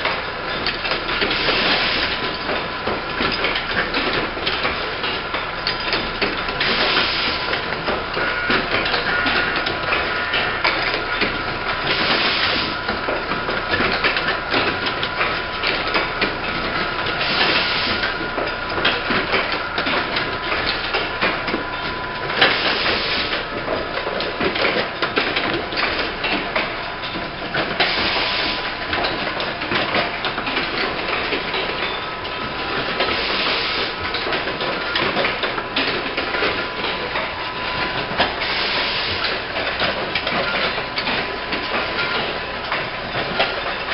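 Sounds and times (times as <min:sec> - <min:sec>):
rapid mechanical clicking and clatter: 0:00.0 - 0:43.9
pneumatic air exhaust hiss: 0:17.2 - 0:18.0, 0:22.5 - 0:23.4, 0:27.8 - 0:28.6, 0:33.1 - 0:33.9, 0:38.4 - 0:39.3.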